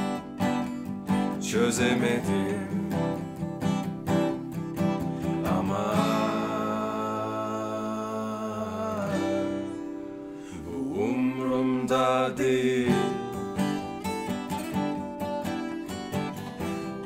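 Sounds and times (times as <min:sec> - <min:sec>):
acoustic guitars strumming: 0:00.0 - 0:17.0
man singing wordless line: 0:01.2 - 0:03.3, 0:05.2 - 0:14.0.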